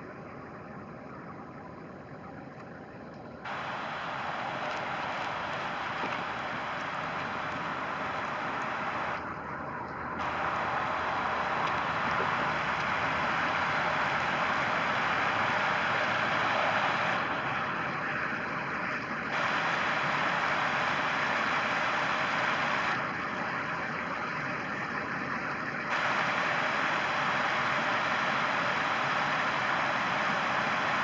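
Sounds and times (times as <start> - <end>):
creek water rushing over rocks: 3.5 - 23.0.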